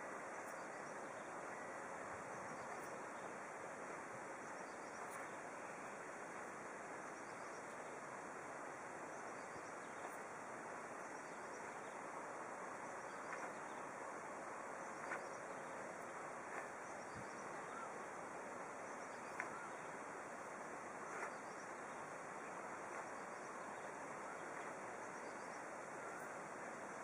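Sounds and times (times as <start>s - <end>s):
even outdoor hiss: 0.0s - 27.0s
faint ticks: 13.1s - 13.8s, 16.5s - 17.4s, 19.2s - 19.7s.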